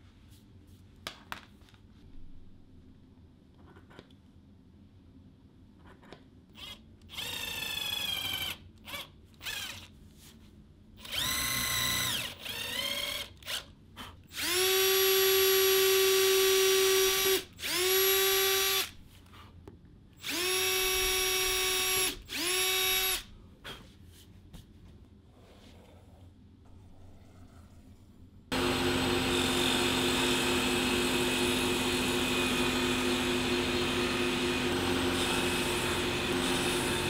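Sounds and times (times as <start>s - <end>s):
cordless drill whining: 6.6s - 9.9s, 11.0s - 13.6s, 14.3s - 18.9s, 20.2s - 23.3s, 28.5s - 37.0s.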